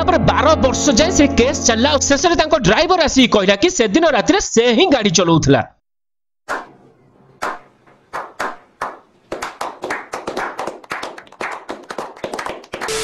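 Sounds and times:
men clapping hands: 0:07.4 - 0:13.0.

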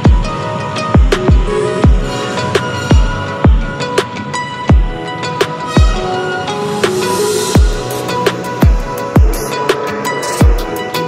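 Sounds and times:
electronic music: 0:00.0 - 0:11.0
pitch-dropping bass drum: 0:07.6 - 0:09.6.

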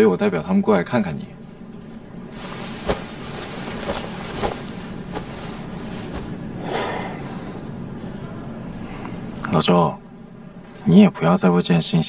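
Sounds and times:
steady background hiss: 0:00.0 - 0:12.0
fabric rustling: 0:01.4 - 0:07.2.

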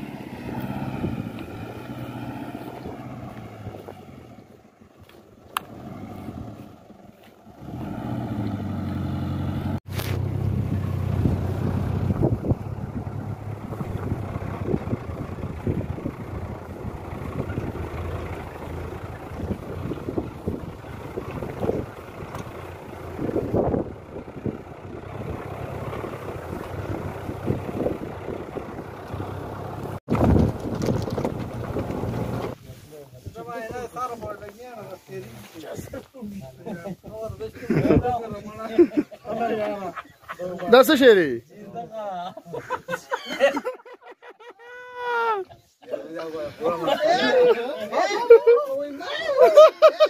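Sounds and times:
car engine running at low revs: 0:00.0 - 0:32.6
knocks and jolts from bumpy ride: 0:24.8 - 0:32.6
microphone handling noise: 0:30.1 - 0:32.6.

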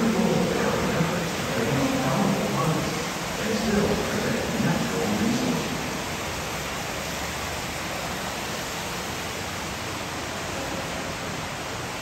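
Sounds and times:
running water rushing: 0:00.0 - 0:12.0.

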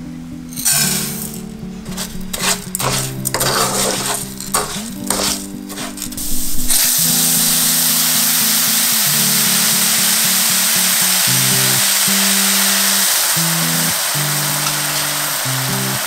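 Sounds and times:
background music: 0:00.0 - 0:12.1
rice scraping in a pan: 0:00.6 - 0:06.9
rice sizzling in hot oil: 0:00.6 - 0:16.0.

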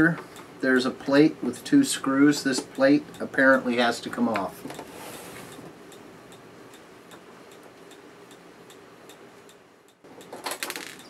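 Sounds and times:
faint even ticking: 0:05.5 - 0:10.3.

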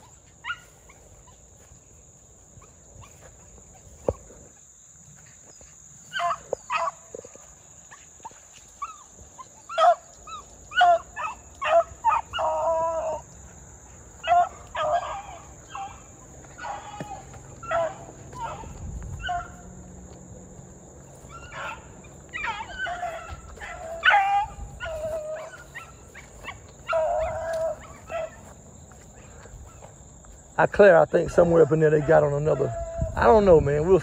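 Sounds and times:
dogs baying and yelping: 0:00.0 - 0:30.5, 0:31.3 - 0:34.0.

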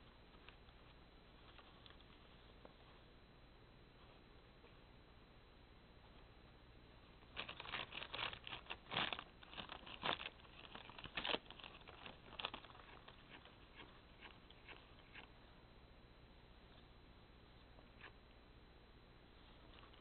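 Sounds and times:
cat licking plastic bag: 0:07.2 - 0:15.2.

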